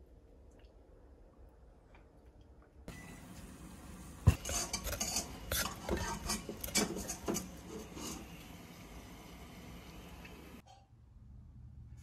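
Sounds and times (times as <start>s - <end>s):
rice paddle scraping a pot: 4.2s - 8.6s.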